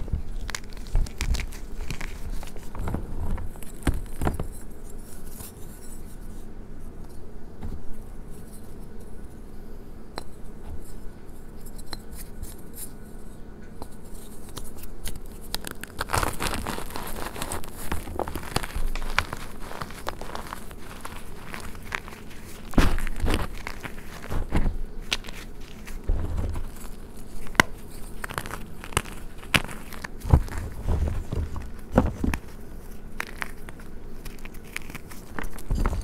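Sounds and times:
chalk crunching in hands: 0:14.1 - 0:36.0.

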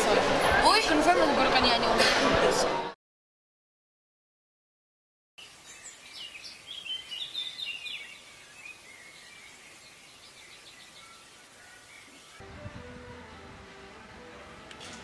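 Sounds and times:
songbirds chirping: 0:05.4 - 0:14.8
steady outdoor hiss: 0:05.4 - 0:15.0.

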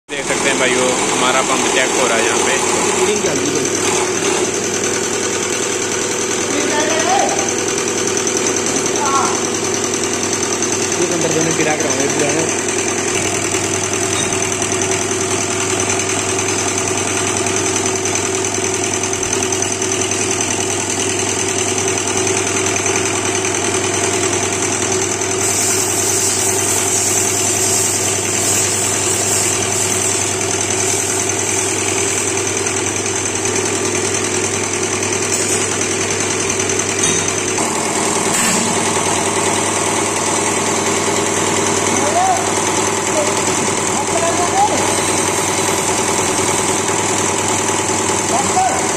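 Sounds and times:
test bench mechanical hum and whir: 0:00.1 - 0:48.9.

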